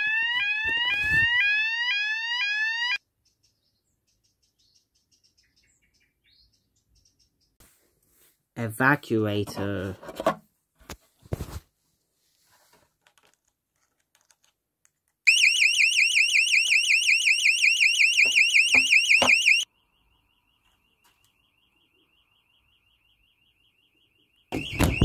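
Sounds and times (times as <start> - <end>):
fire alarm warble tone: 0.0 - 3.0, 15.3 - 25.0.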